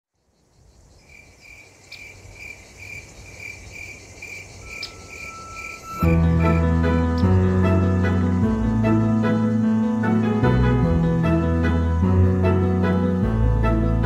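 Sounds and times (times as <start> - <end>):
crickets chirping: 0.1 - 13.9
piano music: 4.6 - 14.0.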